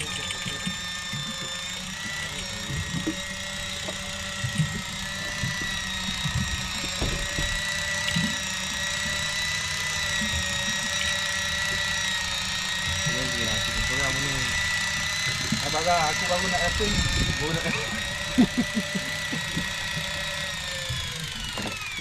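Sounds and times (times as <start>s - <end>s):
fishing reel motor whining: 0.0s - 22.0s.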